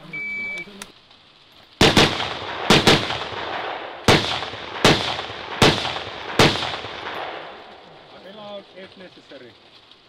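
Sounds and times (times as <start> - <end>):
rifle shots: 1.8 - 7.8.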